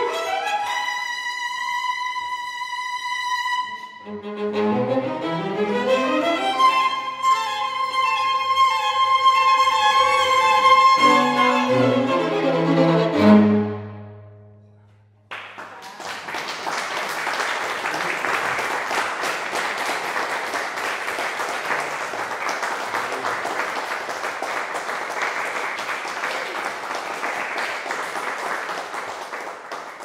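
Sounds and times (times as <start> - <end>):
string quartet chord: 3.7 - 14.6
audience applause: 15.3 - 30.0.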